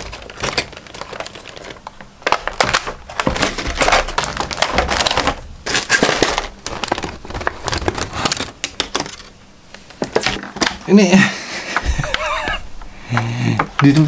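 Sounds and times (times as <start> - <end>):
plastic packaging crackling: 0.0 - 11.1.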